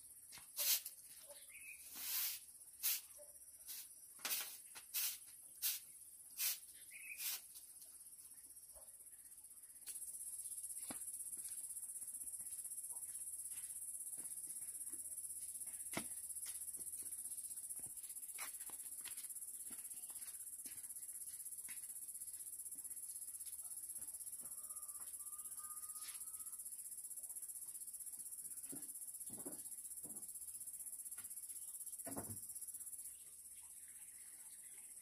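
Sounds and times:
insect trilling: 5.0 - 7.5.

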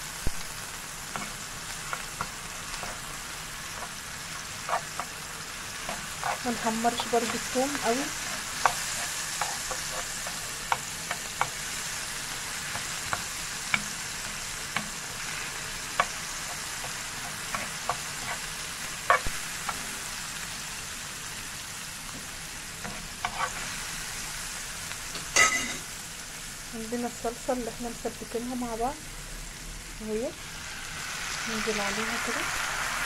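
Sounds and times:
garlic frying in oil: 0.0 - 33.0
metal spoon scraping pan: 1.1 - 11.5, 16.0 - 19.8, 22.8 - 23.8.

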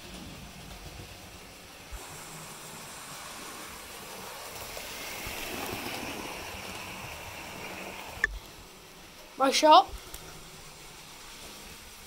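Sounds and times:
model train running on track: 0.0 - 12.0.

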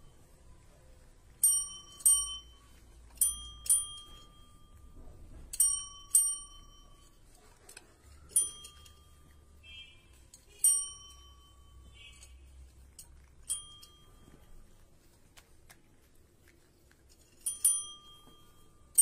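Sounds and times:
desk service bell dinging: 1.4 - 2.6, 3.2 - 7.2, 8.3 - 9.9, 10.6 - 12.3, 13.5 - 14.4.

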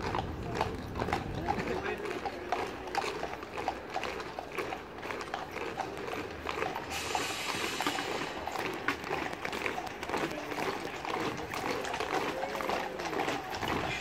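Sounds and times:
boots marching on road: 0.0 - 14.0
hiss: 6.9 - 8.5.

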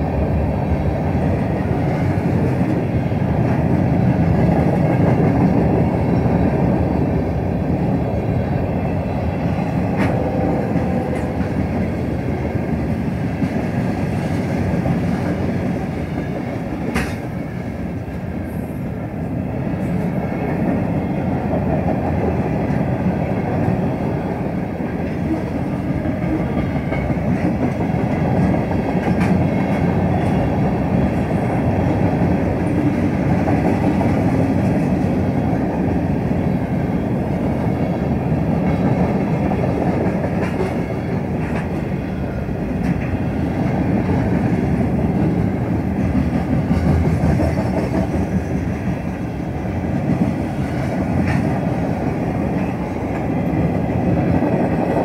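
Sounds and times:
train wheels rolling on rails: 0.0 - 55.0.

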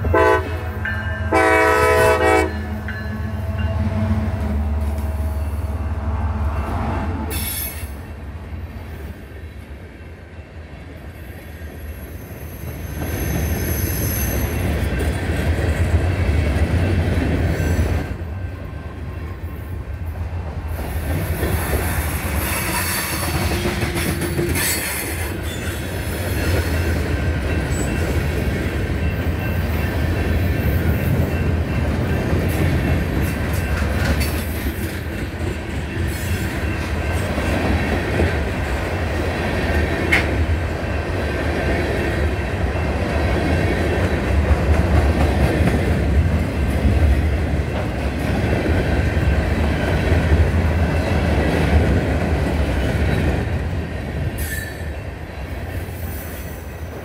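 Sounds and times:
freight train wheels clattering: 20.7 - 57.0.

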